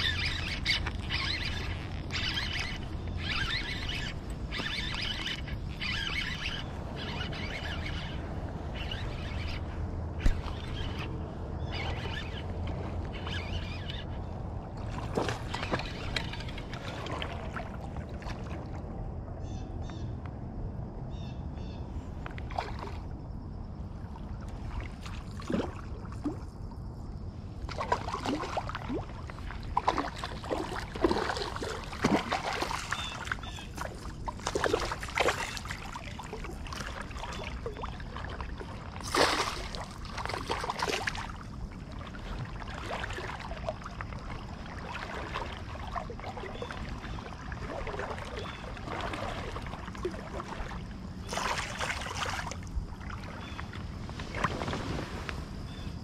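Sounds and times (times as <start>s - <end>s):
fish splashing in water: 27.7s - 55.9s.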